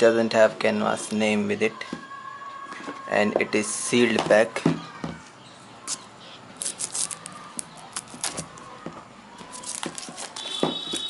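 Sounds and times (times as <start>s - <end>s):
plastic film crinkling: 6.6s - 11.0s.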